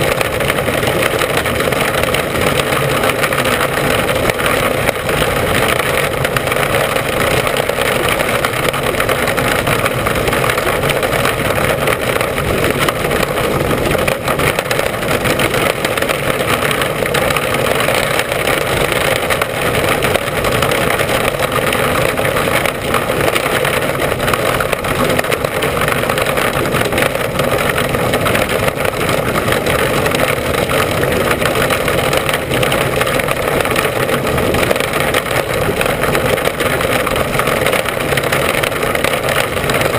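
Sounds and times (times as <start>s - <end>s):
race car engine running hard: 0.0s - 39.9s.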